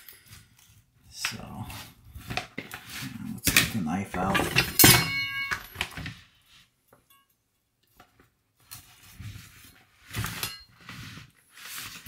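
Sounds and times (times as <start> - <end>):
metal utensils clinking: 3.4 - 5.9
utensils scraping: 8.7 - 12.0.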